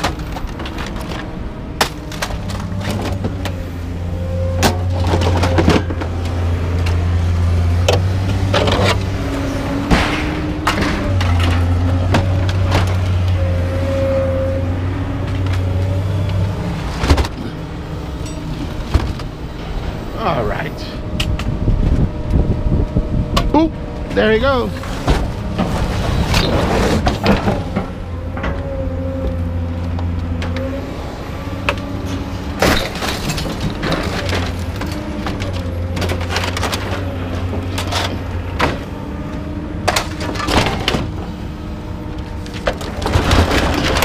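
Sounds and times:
excavator engine and hydraulics drone: 0.0 - 44.0.

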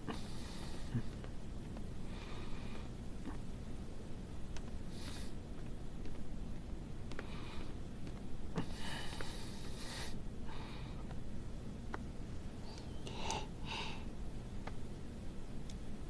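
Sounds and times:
person breathing softly: 0.0 - 1.3, 2.0 - 3.0, 4.9 - 5.7, 7.1 - 7.8, 8.5 - 11.2, 12.6 - 14.2
low steady hum: 0.0 - 16.0.

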